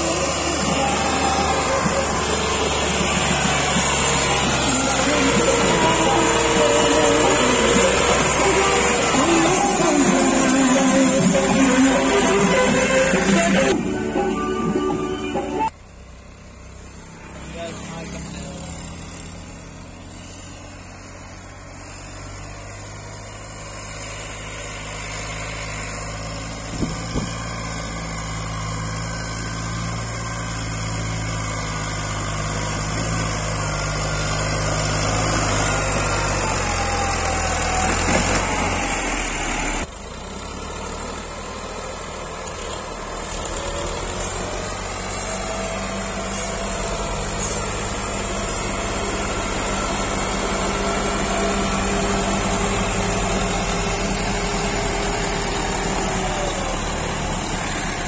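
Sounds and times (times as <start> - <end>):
tractor diesel engine under load: 0.0 - 58.0.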